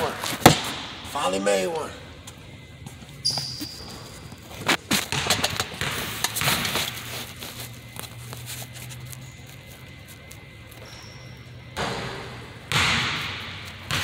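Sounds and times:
low steady hum: 0.0s - 14.0s
scraping rustle: 6.4s - 10.8s.

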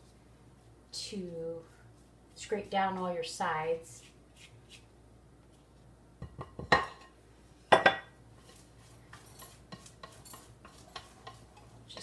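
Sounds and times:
spatula scraping glass bowl: 8.5s - 12.0s.

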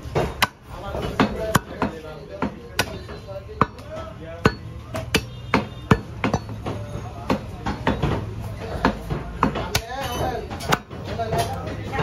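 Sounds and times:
cleaver chopping meat on wood: 0.0s - 12.0s.

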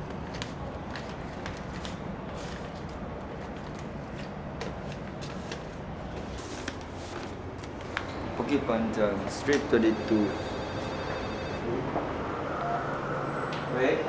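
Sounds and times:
paper rustling: 0.0s - 8.1s
low background hum: 0.0s - 14.0s.

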